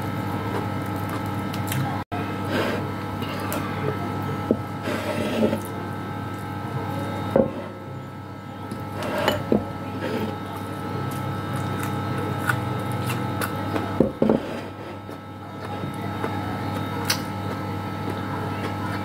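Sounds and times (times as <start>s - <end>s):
steady electrical hum: 0.0s - 19.0s
person chewing: 11.1s - 13.6s.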